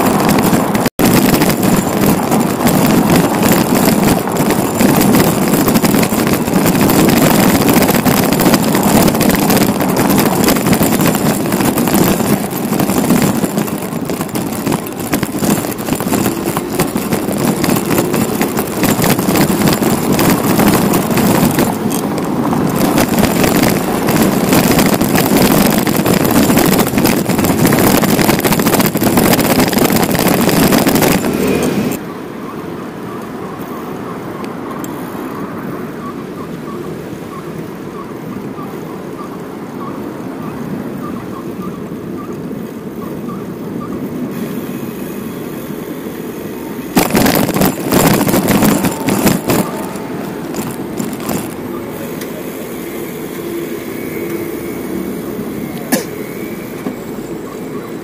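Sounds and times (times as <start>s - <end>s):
road noise: 0.0s - 58.0s
wind rush on microphone: 0.0s - 58.0s.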